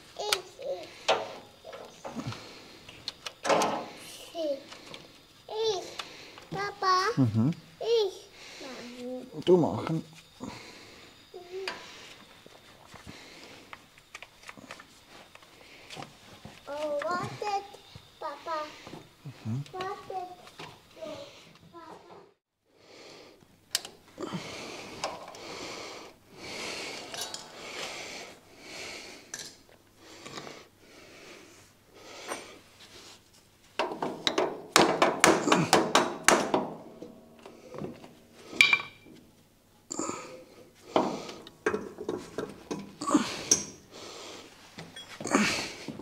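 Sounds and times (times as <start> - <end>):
hand tools clinking on metal: 27.0 - 27.6, 38.6 - 39.1, 41.6 - 43.8.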